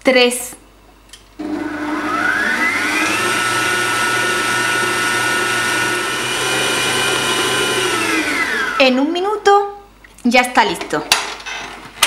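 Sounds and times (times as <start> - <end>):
stand mixer motor whine: 1.4 - 8.8
beater mixing cake batter: 1.4 - 9.0.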